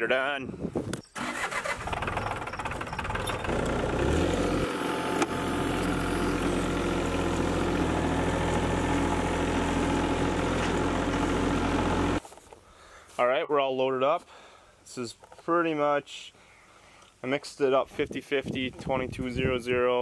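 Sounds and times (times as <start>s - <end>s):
tractor engine running: 1.2s - 12.2s.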